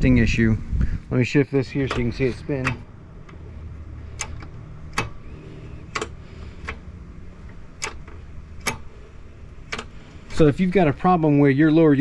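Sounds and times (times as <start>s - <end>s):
low steady hum: 0.0s - 12.0s
sharp metallic clicks of shift linkage: 1.8s - 10.5s.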